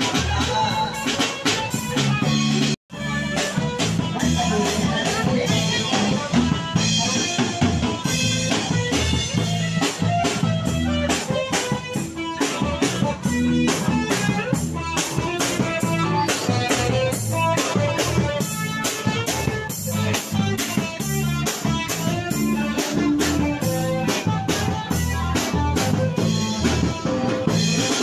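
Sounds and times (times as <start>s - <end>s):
live band dance music: 0.0s - 28.0s.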